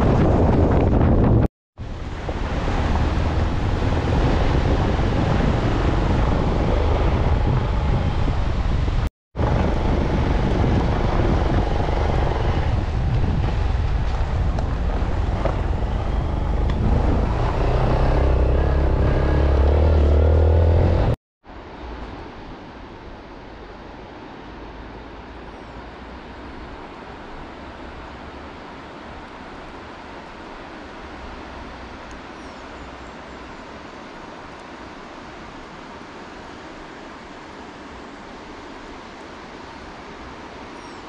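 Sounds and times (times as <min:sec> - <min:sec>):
vehicle rumble with road noise: 0:00.0 - 0:41.0.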